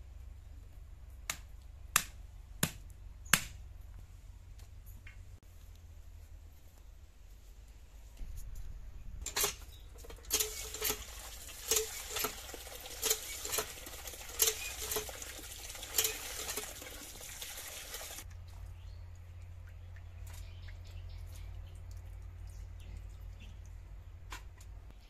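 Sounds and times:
hand pump squeaking: 0:09.2 - 0:17.0
water gushing into steel bowl: 0:10.2 - 0:18.3.

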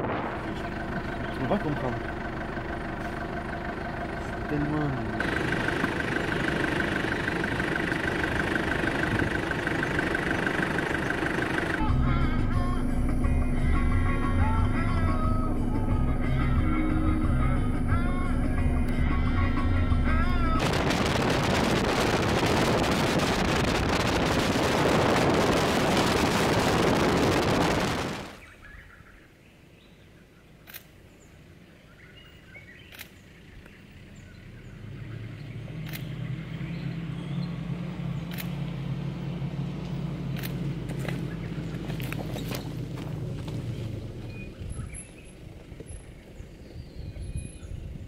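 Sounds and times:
loud steady rushing noise: 0:00.0 - 0:00.7, 0:20.5 - 0:28.4
off-road vehicle engine approaching: 0:00.0 - 0:48.0
music: 0:11.8 - 0:20.6
sharp clicks: 0:30.6 - 0:31.0, 0:32.9 - 0:33.8, 0:35.8 - 0:36.2, 0:38.2 - 0:38.7, 0:40.3 - 0:40.7.

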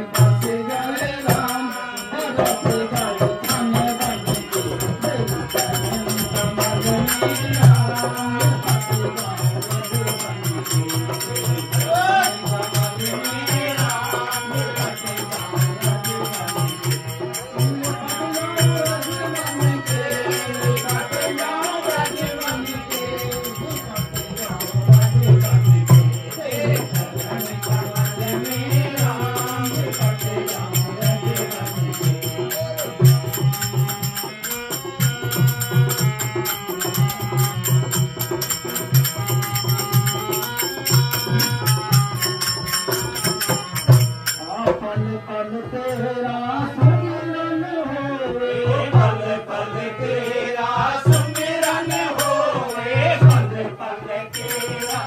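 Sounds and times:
jingling percussion: 0:00.0 - 0:46.0, 0:48.8 - 0:55.0
harmonium: 0:00.0 - 0:55.0
man singing into microphone: 0:00.0 - 0:55.0
hand drum: 0:02.4 - 0:44.9.

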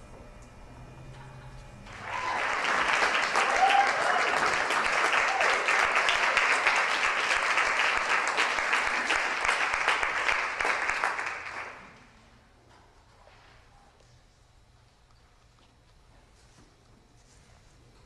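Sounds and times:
audience applauding: 0:01.9 - 0:12.1.

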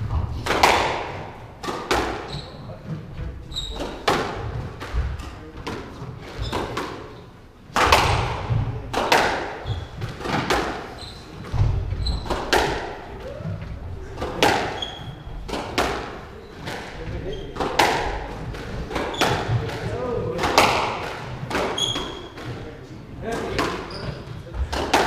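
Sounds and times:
squash ball hits: 0:00.0 - 0:02.5, 0:03.6 - 0:25.0
shoes squeaking on wooden floor: 0:01.1 - 0:07.4, 0:09.5 - 0:20.2, 0:21.2 - 0:22.8, 0:23.4 - 0:25.0.

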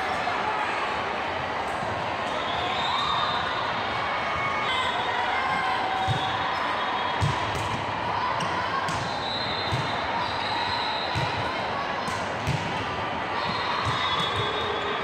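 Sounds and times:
many voices: 0:00.0 - 0:15.0
ball bouncing on hard court: 0:12.1 - 0:12.8.

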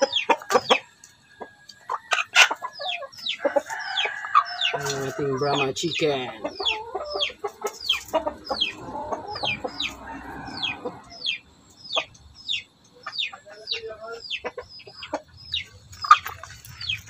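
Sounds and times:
chickens clucking: 0:00.0 - 0:17.0
chicks peeping: 0:00.0 - 0:17.0.

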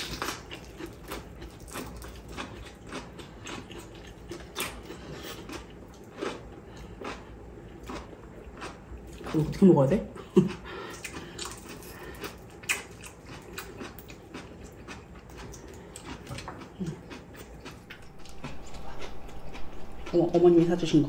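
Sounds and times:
grilled fish skin crackling and tearing: 0:00.0 - 0:05.6
chewing mouth sounds: 0:00.0 - 0:09.6, 0:10.4 - 0:21.0.

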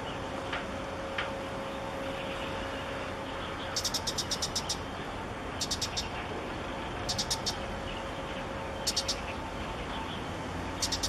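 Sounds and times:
faint steady hum: 0:00.0 - 0:11.0
high-pitched clicking chirps: 0:03.8 - 0:04.8, 0:05.6 - 0:06.2, 0:07.1 - 0:07.6, 0:08.9 - 0:09.2, 0:10.8 - 0:11.0.

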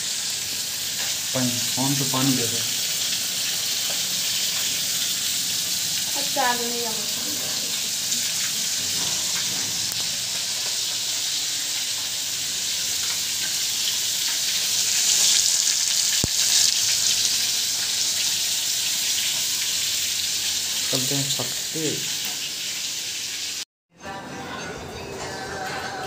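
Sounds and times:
fish frying in hot oil: 0:00.0 - 0:23.6.

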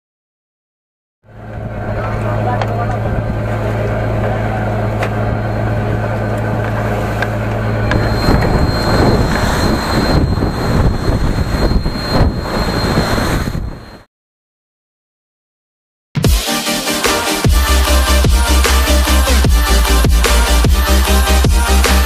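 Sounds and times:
boat engine humming: 0:01.3 - 0:13.3, 0:16.5 - 0:22.0.

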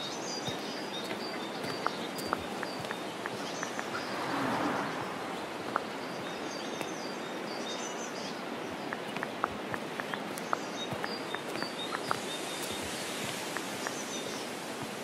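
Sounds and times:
small birds chirping: 0:00.0 - 0:15.0
light ticks: 0:00.5 - 0:04.1, 0:08.9 - 0:14.5
steady background hiss: 0:05.0 - 0:15.0.

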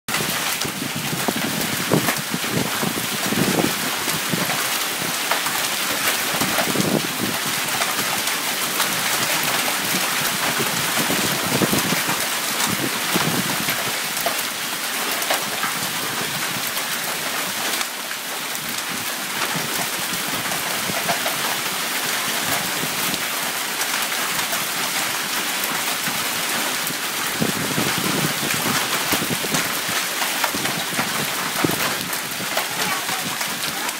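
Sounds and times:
hail and heavy rain pelting: 0:00.1 - 0:33.9.

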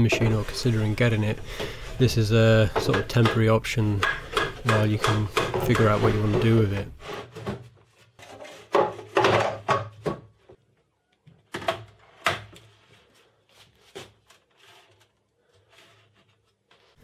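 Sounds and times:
boards scraping on wood: 0:00.0 - 0:02.2, 0:04.0 - 0:09.6
items set down knocking: 0:08.5 - 0:10.3.

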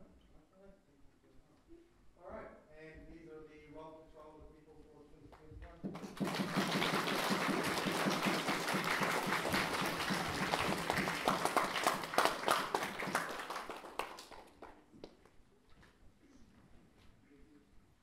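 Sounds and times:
children clapping: 0:05.9 - 0:14.8.

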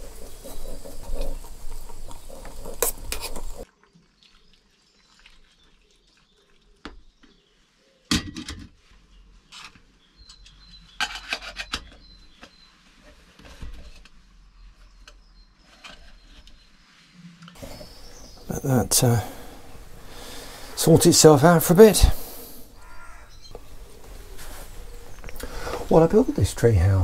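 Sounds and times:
spoon scraping metal pot: 0:00.0 - 0:03.6.

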